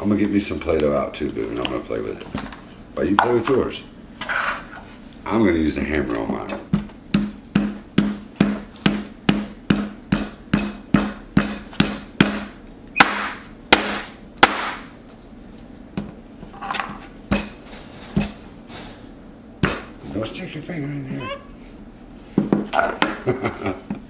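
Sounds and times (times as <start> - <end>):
rubber mallet pounding dough: 6.7 - 14.9.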